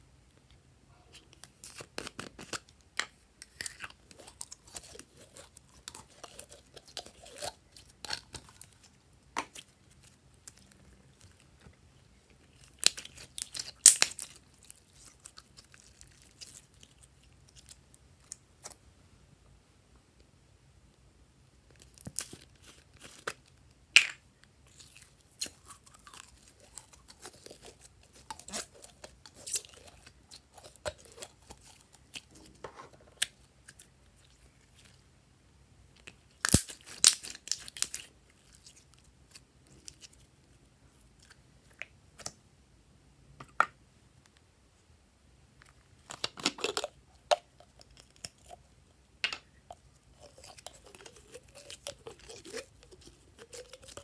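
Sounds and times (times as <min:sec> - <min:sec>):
sticky slime crackles: 0:12.4 - 0:18.8, 0:36.0 - 0:40.2, 0:49.7 - 0:54.0.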